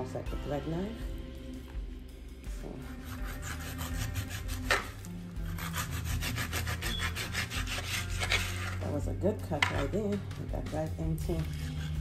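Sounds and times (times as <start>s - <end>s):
knife sawing through meat: 2.8s - 8.9s, 11.4s - 12.0s.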